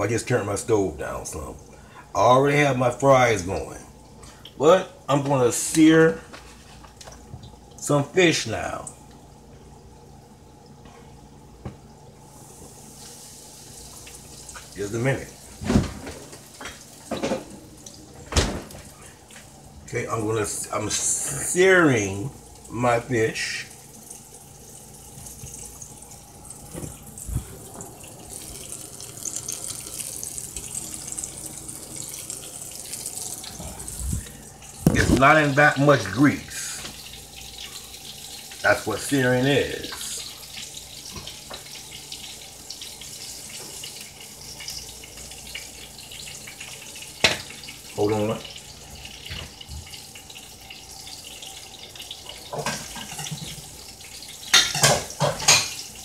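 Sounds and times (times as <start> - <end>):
fish sizzling in a frying pan: 12.3 - 15.6, 28.2 - 56.0
thump: 15.6 - 16.0
dishes clattering: 52.4 - 53.7, 54.4 - 55.9.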